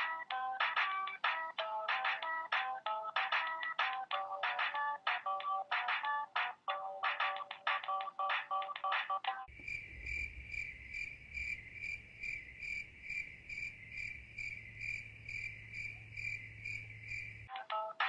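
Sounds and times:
keyboard tune: 0.0 - 9.5, 17.5 - 18.0
crickets chirping: 9.5 - 17.5
faint low hum: 9.5 - 17.5.

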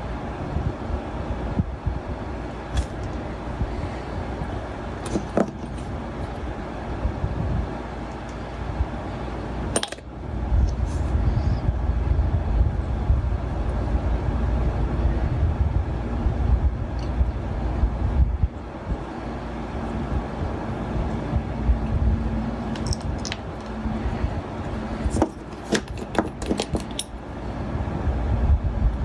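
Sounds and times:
low rumble: 10.1 - 26.0.

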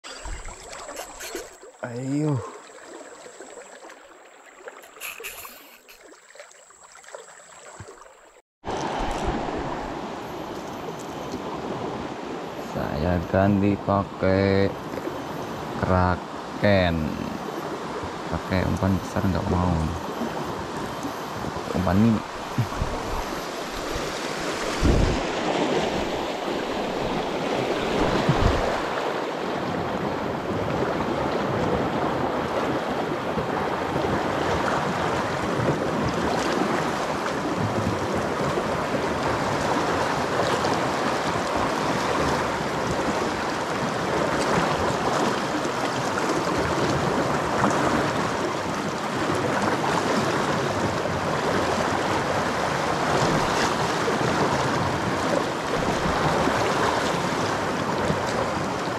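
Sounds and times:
river rushing through rapids: 38.1 - 58.9.

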